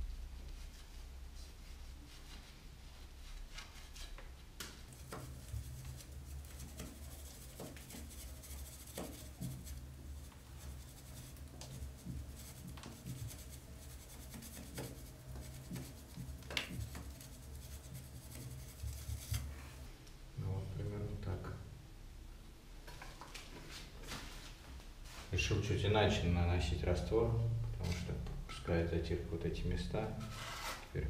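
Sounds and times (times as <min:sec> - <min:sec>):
rule scraping plaster: 0:04.9 - 0:19.6, 0:30.2 - 0:30.9.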